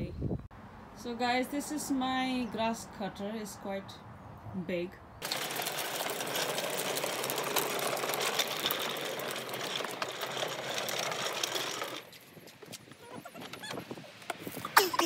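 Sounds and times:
lawnmower rattling over concrete: 5.2 - 12.3.

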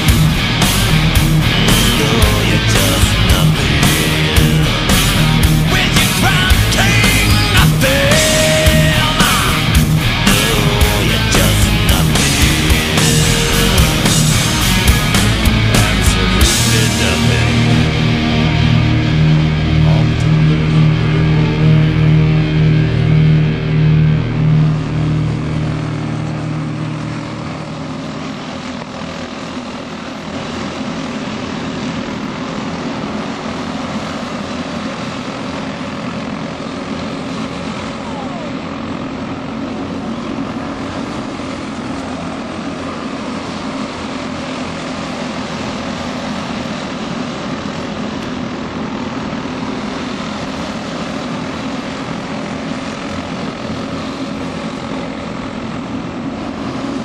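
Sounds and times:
music: 0.0 - 24.8
racing kart engines buzzing: 0.0 - 57.0.

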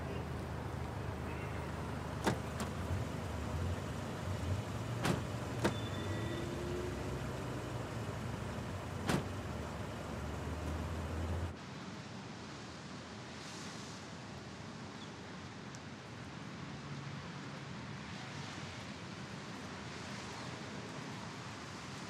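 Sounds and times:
car engine and road rumble: 0.0 - 11.6
car door shutting: 1.9 - 11.5
car door clicking open: 2.1 - 2.9, 4.8 - 6.2, 8.4 - 9.8.

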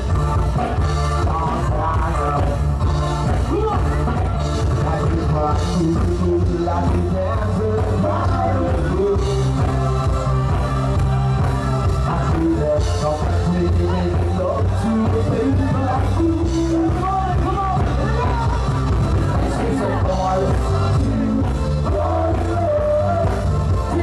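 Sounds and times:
heavy bass line: 0.0 - 24.0
loud dance music: 0.0 - 24.0
person singing: 0.3 - 24.0.

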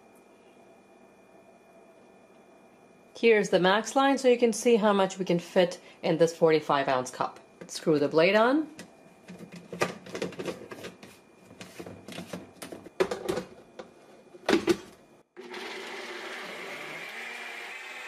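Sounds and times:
blender motor whirring: 15.4 - 18.0.

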